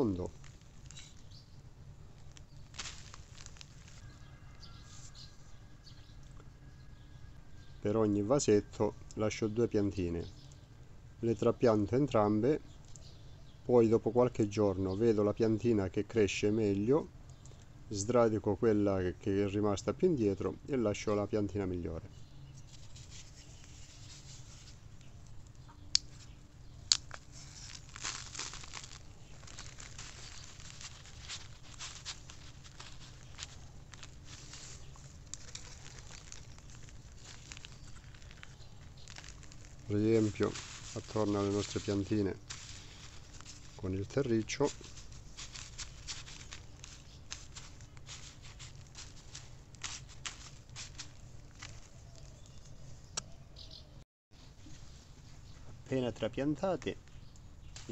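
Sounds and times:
blade brushing plastic film: 0.0 - 1.4, 2.2 - 4.2, 22.6 - 52.7, 57.6 - 57.9
plastic crinkling and rustling: 0.0 - 5.6, 22.2 - 52.9, 56.8 - 57.9
trowel scraping soil: 27.0 - 52.0.

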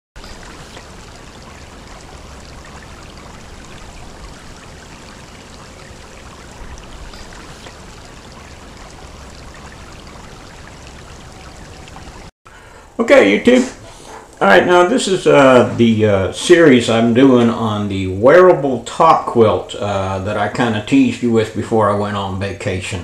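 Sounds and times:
creek babbling over stones: 0.2 - 12.3.

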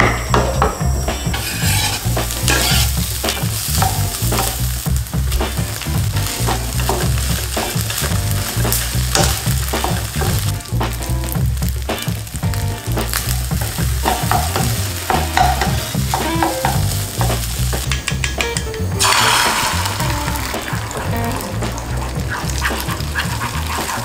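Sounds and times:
food sizzling in a frying pan: 0.0 - 24.0
wooden spatula stirring and scraping: 1.3 - 10.5, 20.3 - 24.0.

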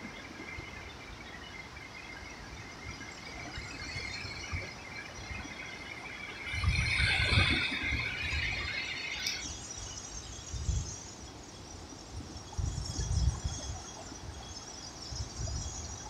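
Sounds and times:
harsh high-pitched squealing: 6.4 - 9.6.

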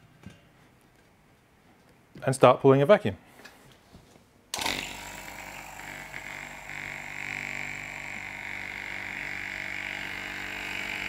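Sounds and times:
vacuum pump humming: 4.6 - 11.0.

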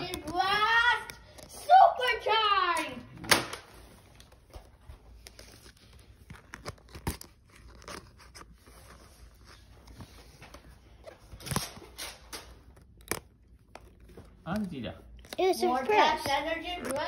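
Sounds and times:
scissors snipping packaging: 6.2 - 8.6, 11.3 - 17.0.

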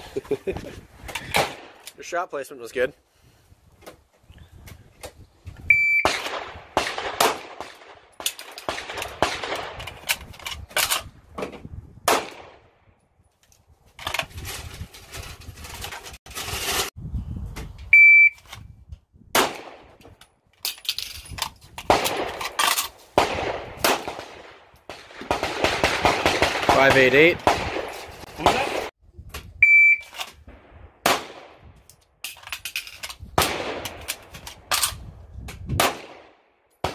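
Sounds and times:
shot timer beep: 5.7 - 6.1, 18.0 - 18.4, 29.6 - 30.1.

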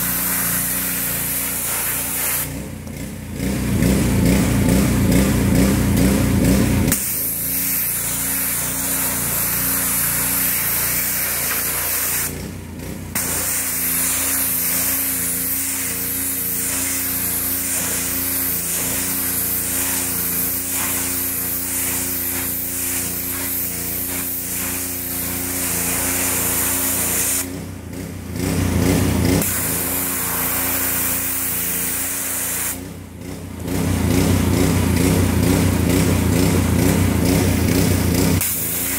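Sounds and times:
water jet hissing on fabric: 0.0 - 2.6, 6.9 - 12.4, 13.2 - 27.5, 29.4 - 32.8, 38.4 - 38.9
pressure washer engine running: 0.0 - 38.9.

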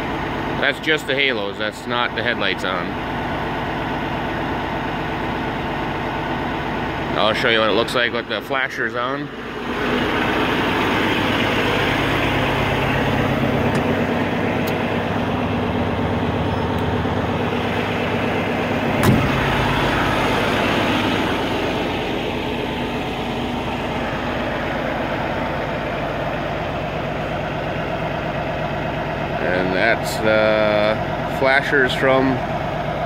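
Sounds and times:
truck diesel engine idling: 0.0 - 33.0
sharp knock: 19.0 - 19.4.

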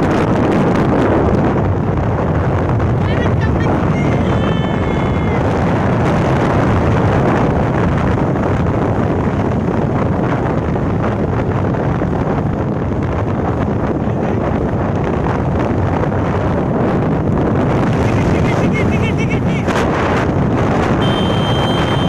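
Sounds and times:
scooter engine and road noise: 0.0 - 22.0
wind buffeting microphone: 0.0 - 22.0
short high-pitched tone: 21.0 - 22.0.

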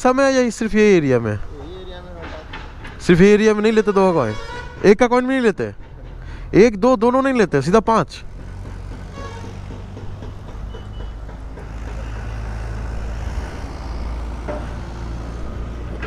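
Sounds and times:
vehicle engine humming: 5.6 - 16.0.

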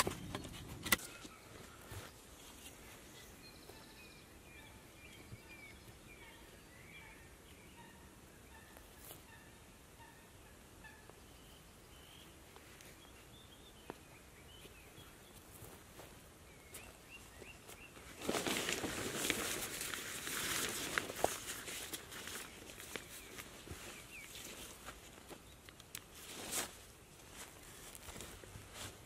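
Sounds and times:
small birds chirping: 0.0 - 29.0
tarp crinkling and rustling: 18.0 - 29.0.

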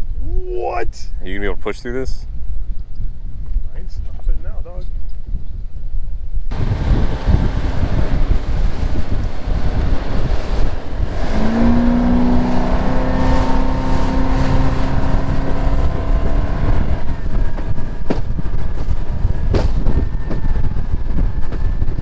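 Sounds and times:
wind buffeting microphone: 0.0 - 22.0
outboard motor running: 6.5 - 19.8
hull slapping waves: 6.5 - 21.8.

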